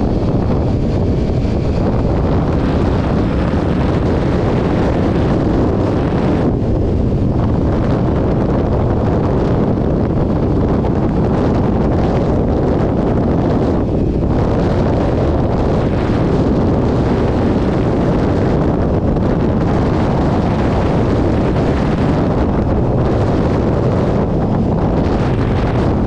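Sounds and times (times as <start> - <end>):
wind rushing over microphone: 0.0 - 26.0.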